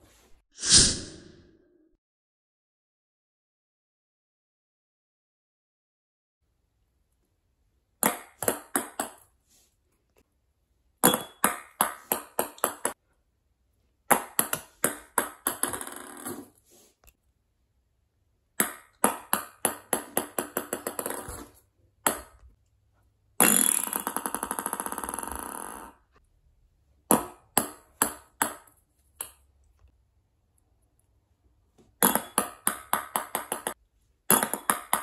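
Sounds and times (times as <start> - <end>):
ping-pong ball bouncing on wood: 8.0 - 9.2, 11.0 - 13.0, 14.1 - 16.3, 18.6 - 21.4, 22.0 - 22.4, 27.1 - 29.4, 32.0 - 35.0.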